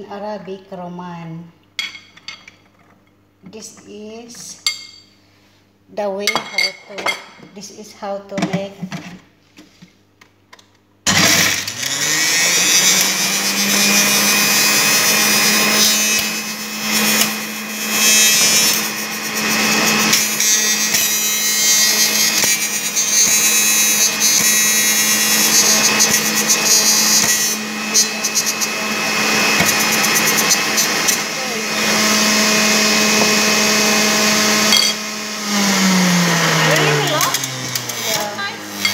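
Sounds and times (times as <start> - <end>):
juicer motor whining: 11.1 - 38.9.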